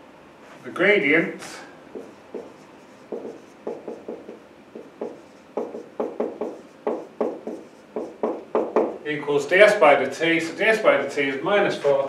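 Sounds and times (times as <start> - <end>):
marker pen on whiteboard: 1.3 - 9.0, 11.2 - 12.0.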